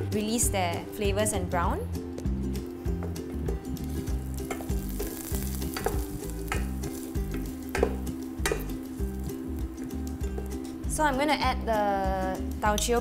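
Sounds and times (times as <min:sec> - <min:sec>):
background music: 0:00.0 - 0:13.0
aromatics sizzling in oil: 0:03.7 - 0:11.2
wooden spatula knocking pot: 0:05.7 - 0:08.8.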